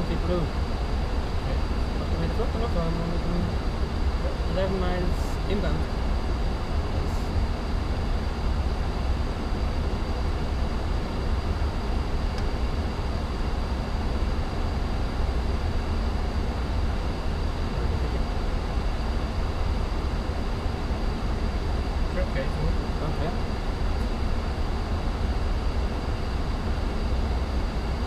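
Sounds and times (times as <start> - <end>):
aircraft engine and airflow drone: 0.0 - 28.0.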